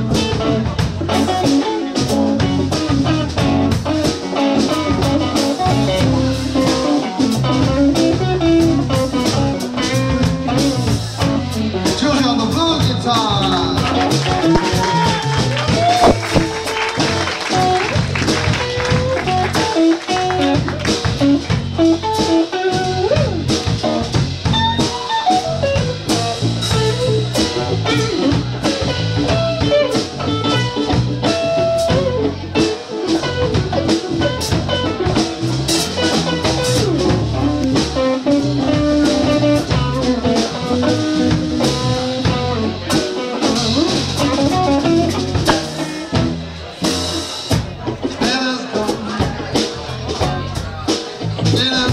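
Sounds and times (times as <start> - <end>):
blues band playing: 0.0 - 51.9
lead electric guitar bending notes: 16.0 - 47.0.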